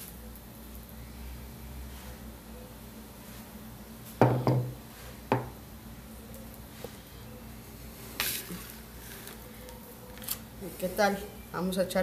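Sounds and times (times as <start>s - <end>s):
kitchenware knocking on counter: 4.2s - 5.5s.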